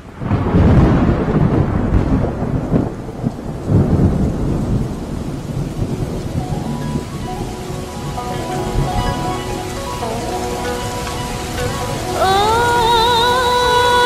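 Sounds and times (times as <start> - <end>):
heavy rain: 0.0 - 14.0
thunder rumbling: 0.0 - 14.0.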